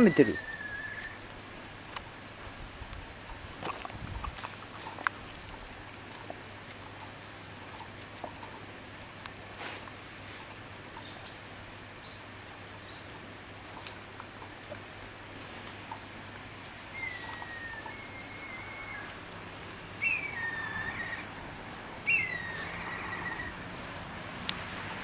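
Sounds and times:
faint high chirps: 0:00.0 - 0:01.2, 0:16.9 - 0:19.2, 0:20.0 - 0:21.3
dog sniffing: 0:09.5 - 0:10.5.

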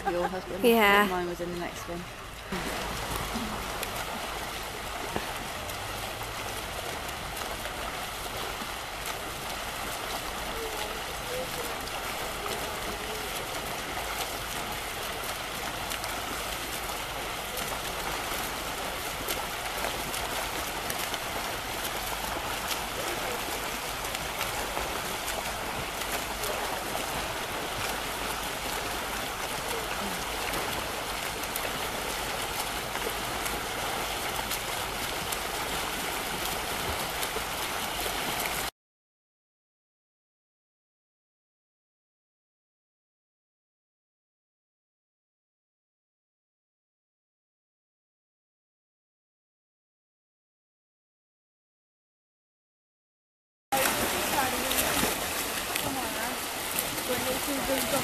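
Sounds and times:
swimmers splashing water: 0:00.0 - 0:38.7, 0:53.8 - 0:58.0.

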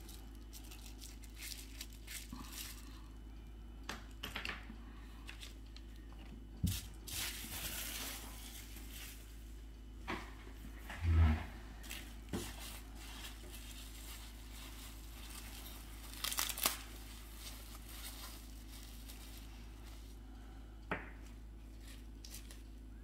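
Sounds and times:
plastic wrapping crinkling and tearing: 0:00.0 - 0:03.1, 0:06.7 - 0:09.4, 0:11.8 - 0:20.2, 0:21.6 - 0:22.8.

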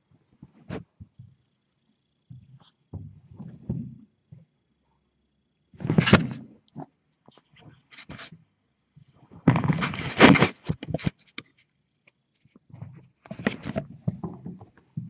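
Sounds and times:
kittens scuffling: 0:00.3 - 0:01.4, 0:09.1 - 0:11.6, 0:12.4 - 0:15.0.

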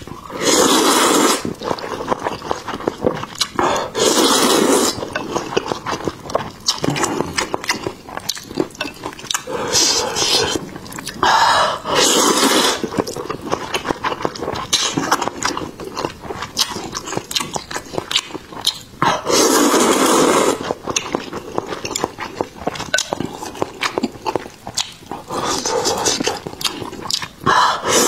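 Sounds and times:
wet chewing: 0:00.0 - 0:28.0
loud slurp of noodles: 0:00.3 - 0:01.6, 0:03.6 - 0:05.0, 0:09.5 - 0:10.6, 0:11.7 - 0:12.9, 0:19.2 - 0:20.8, 0:25.3 - 0:26.3, 0:27.7 - 0:28.0.

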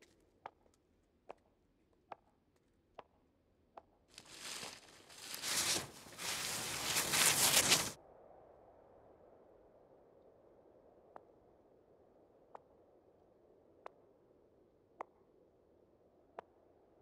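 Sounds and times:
footsteps tapping: 0:04.2 - 0:08.0
loud crackling rustling: 0:04.2 - 0:08.0.

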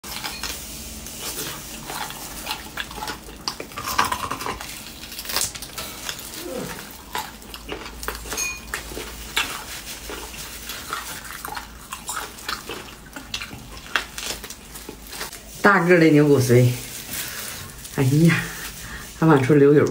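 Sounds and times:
chewing: 0:00.0 - 0:15.6.

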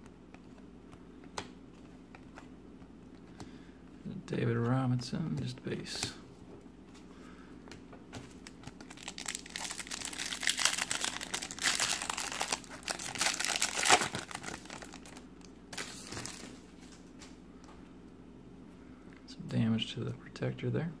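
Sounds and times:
foil wrapper tearing and crinkling: 0:08.4 - 0:15.2.

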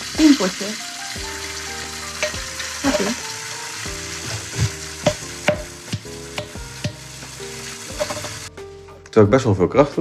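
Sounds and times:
soft background music: 0:00.0 - 0:10.0
tap running into metal sink: 0:04.6 - 0:07.0
glass jar knocking: 0:05.0 - 0:07.0.

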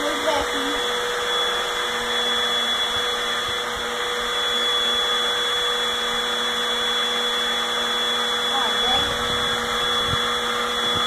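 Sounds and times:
vacuum cleaner running: 0:00.0 - 0:11.0.

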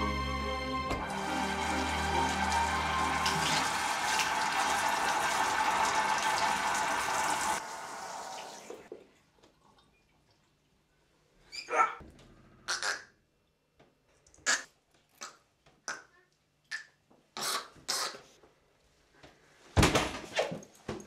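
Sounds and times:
tap water running into sink: 0:01.0 - 0:09.9.

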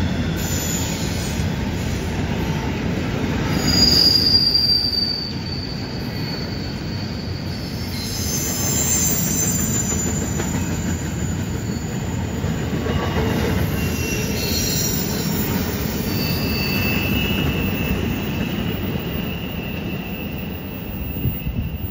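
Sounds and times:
steel wheels rumbling on rail: 0:00.0 - 0:21.9
high-pitched wheel squeal: 0:03.5 - 0:21.9.

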